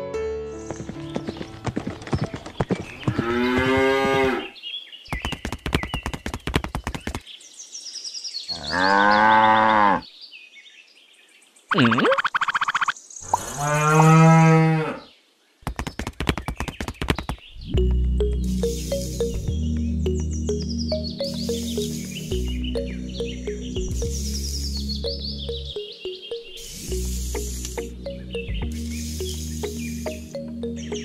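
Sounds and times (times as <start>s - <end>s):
rapid clicking: 5.2s - 7.2s
cow mooing: 8.6s - 10.0s, 13.5s - 15.0s.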